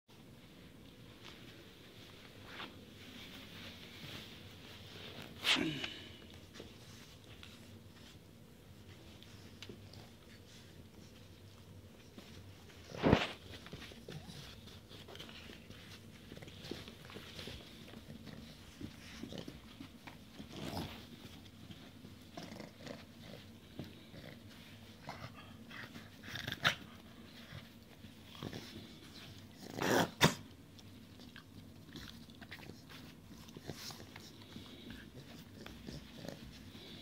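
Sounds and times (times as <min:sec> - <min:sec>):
puppies scuffling and mouthing: 0:00.2 - 0:37.0.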